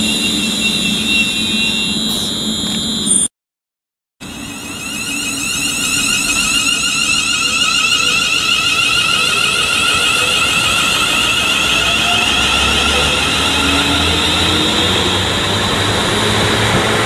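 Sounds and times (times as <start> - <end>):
train electric whine: 0.0 - 3.3, 4.2 - 17.0
wheel and rail rush: 4.2 - 17.0.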